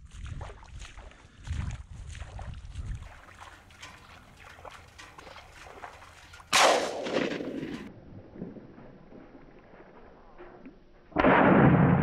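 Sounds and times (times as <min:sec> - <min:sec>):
shotgun blast: 0:06.5 - 0:07.9, 0:11.2 - 0:12.0.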